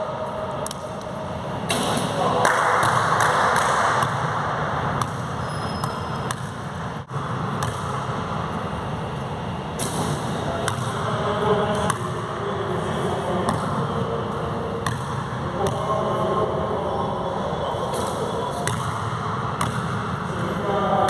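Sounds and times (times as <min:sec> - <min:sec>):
basketball bouncing on court: 0:02.4 - 0:08.2, 0:09.8 - 0:11.1, 0:11.8 - 0:12.2, 0:13.4 - 0:13.9, 0:14.8 - 0:15.9, 0:18.6 - 0:20.1.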